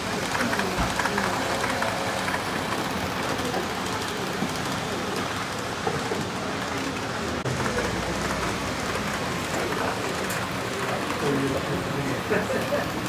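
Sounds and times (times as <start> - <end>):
model train wheels rattling: 0.0 - 13.0.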